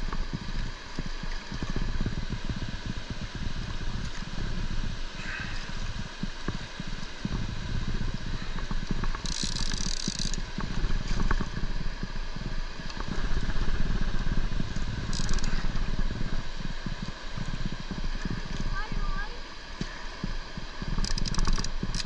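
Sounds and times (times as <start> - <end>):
wind buffeting microphone: 0.0 - 19.4
small clicks and scrapes: 8.5 - 11.6, 12.8 - 15.8, 20.8 - 22.0.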